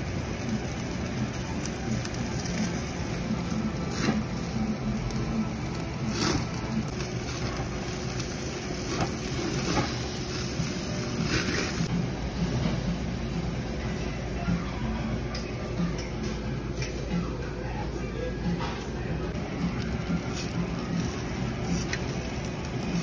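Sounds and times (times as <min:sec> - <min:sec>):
hissing flare-ups: 0:00.0 - 0:11.9
meat sizzling on grill: 0:00.0 - 0:15.2, 0:19.3 - 0:23.0.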